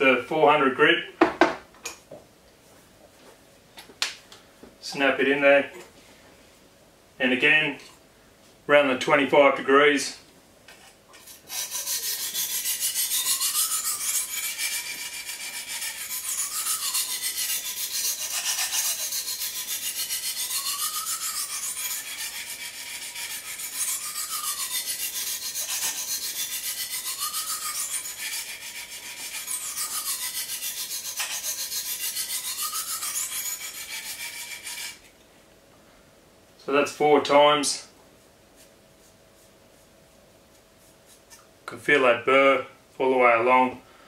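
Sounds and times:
sharpening stone rasping on knife: 11.2s - 35.1s.

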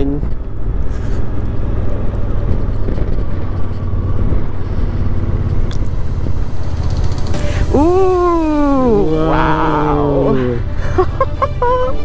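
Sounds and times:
road noise: 0.0s - 12.0s
wind rushing: 0.2s - 10.8s
motorcycle engine running: 0.3s - 9.0s.

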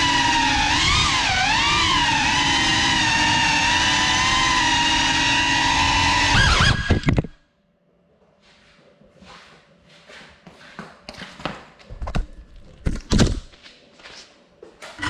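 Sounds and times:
drone motors whining: 0.0s - 7.4s.

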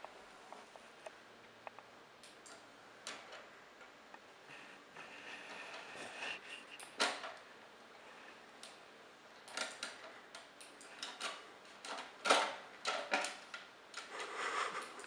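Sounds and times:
cd drive clicking and rattling: 9.4s - 14.1s.

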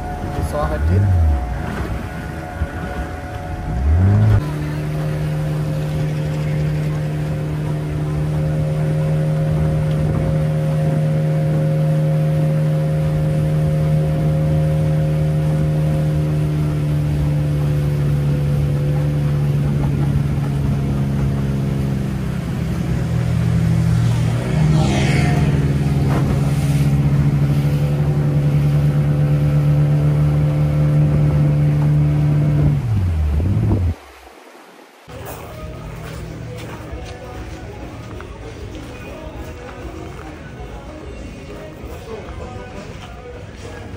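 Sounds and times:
motorboat engine running: 0.0s - 34.0s.

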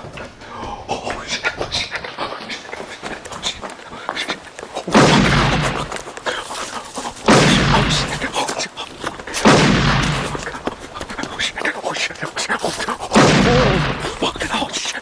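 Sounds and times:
loud gunshots: 4.9s - 6.0s, 7.2s - 8.4s, 9.4s - 10.6s, 13.1s - 14.2s.

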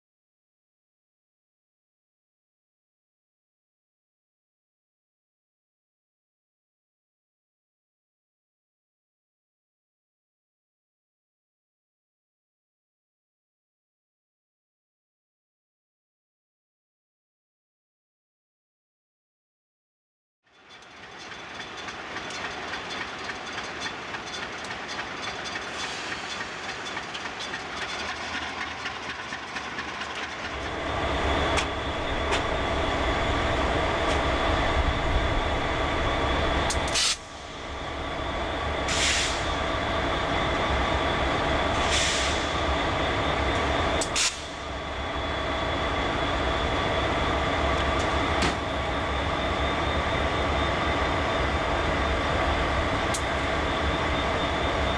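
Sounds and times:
freight train rumbling past: 20.5s - 54.9s.

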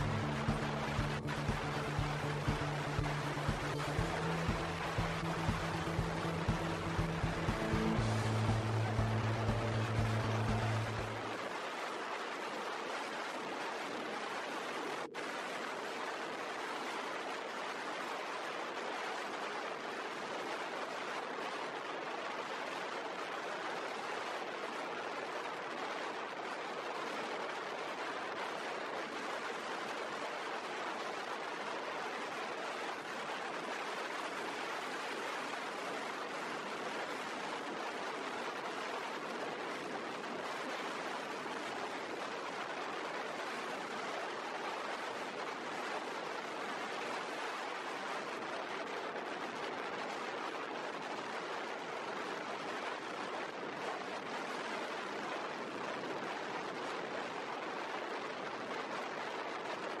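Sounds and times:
road and wind noise: 0.0s - 11.6s
rushing wind: 0.0s - 60.0s.

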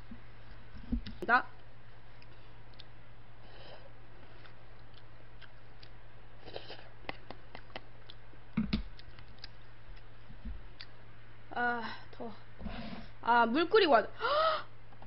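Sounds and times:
steady low hum: 0.0s - 15.0s
person chewing: 2.2s - 3.0s, 4.2s - 11.0s.

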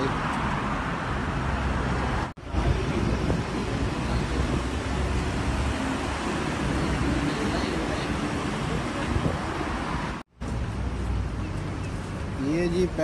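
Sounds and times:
passing cars: 0.0s - 13.0s
wind rumble on microphone: 2.4s - 10.2s.

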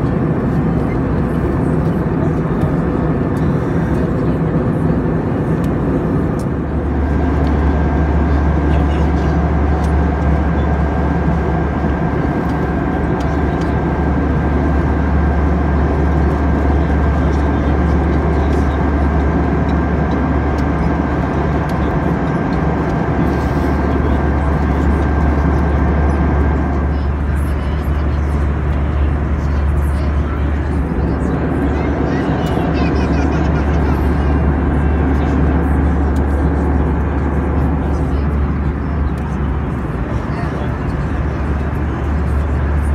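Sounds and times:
airplane cabin engine drone: 0.0s - 42.9s.

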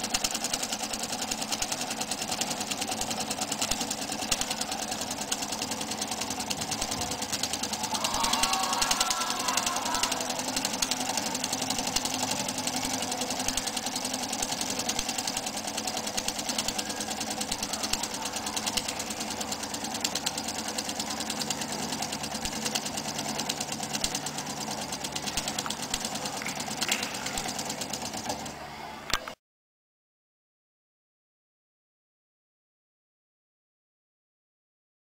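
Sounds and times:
model steam engine clattering: 0.0s - 28.6s.

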